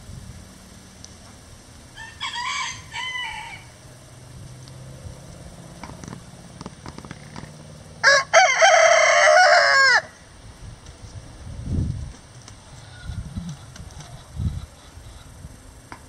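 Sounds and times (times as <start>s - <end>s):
rooster crowing: 2.0s - 3.8s, 8.0s - 10.2s
rooster two-part call: 2.0s - 3.8s.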